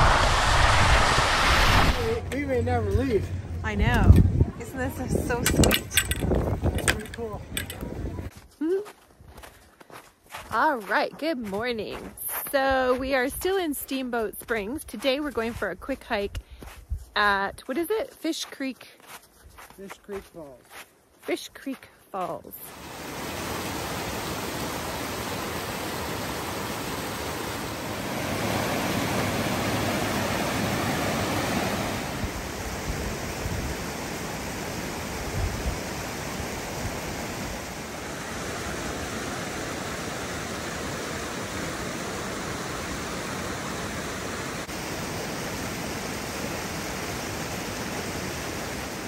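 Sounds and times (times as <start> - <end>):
waterfall rushing: 0.0 - 2.3, 22.7 - 49.0.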